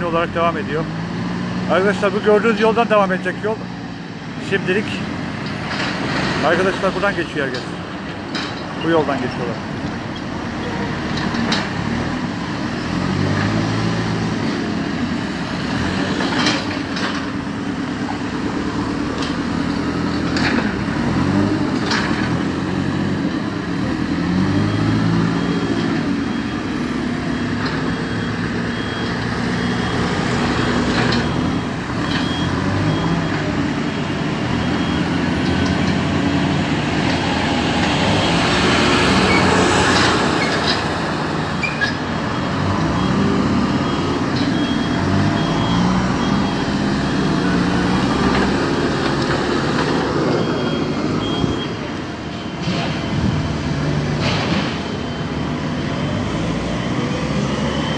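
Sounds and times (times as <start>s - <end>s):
backhoe loader working: 0.0s - 57.9s
diesel machinery engines revving: 0.0s - 57.9s
passing traffic: 0.0s - 57.9s
high beeping: 42.3s - 48.8s.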